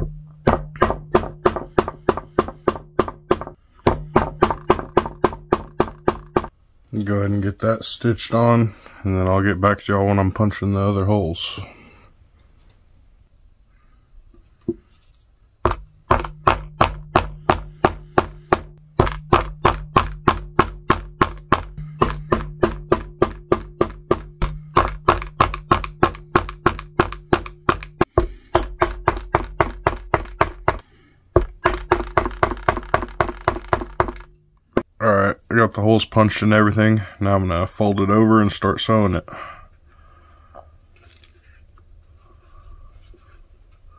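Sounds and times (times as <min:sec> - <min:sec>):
hammer striking metal punch: 0:00.0 - 0:06.5, 0:15.6 - 0:30.8.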